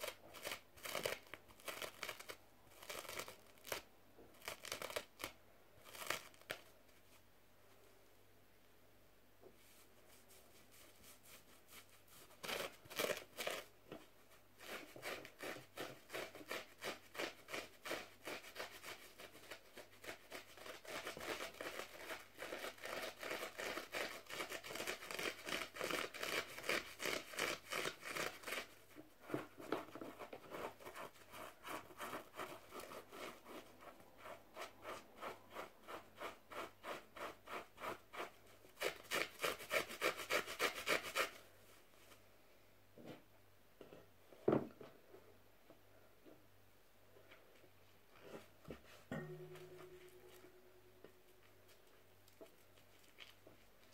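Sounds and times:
fingers scratching a sponge: 0:00.0 - 0:06.7, 0:09.7 - 0:13.7, 0:14.6 - 0:28.8, 0:29.4 - 0:41.4.

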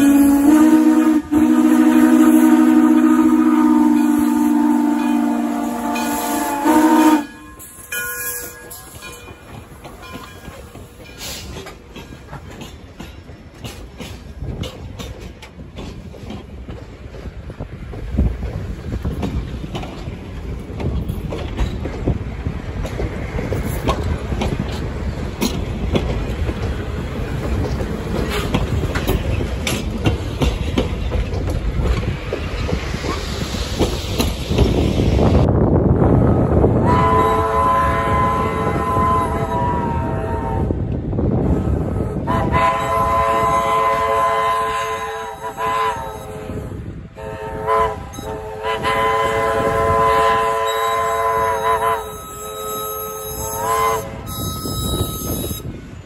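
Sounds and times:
steam locomotive whistle: 0:00.0 - 0:09.1, 0:36.2 - 0:40.8, 0:41.4 - 0:55.7
train wheels clicking over rail joints: 0:00.0 - 0:35.5.

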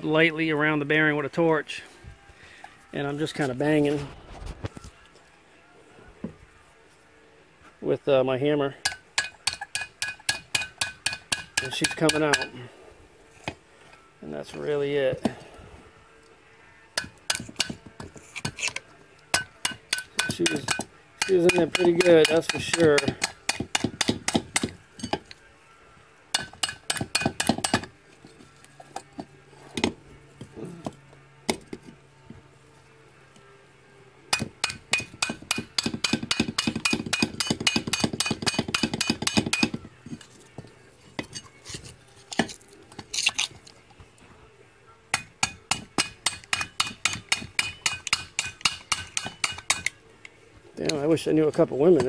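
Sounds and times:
hammer striking screwdriver on metal: 0:08.9 - 0:12.5, 0:17.0 - 0:25.3, 0:26.4 - 0:27.9, 0:34.3 - 0:39.8, 0:45.1 - 0:50.0.

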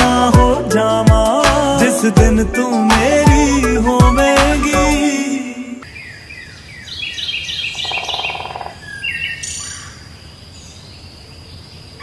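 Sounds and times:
birds chirping: 0:02.8 - 0:12.0.

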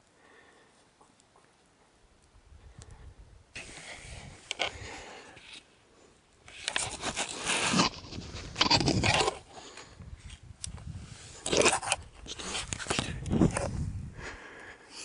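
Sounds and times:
clothing rustling on camera microphone: 0:06.5 - 0:14.1.

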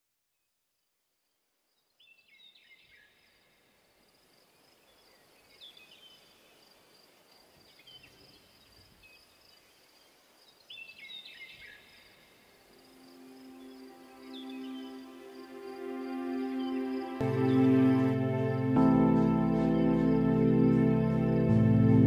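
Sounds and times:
high insect drone: 0:11.9 - 0:21.6.

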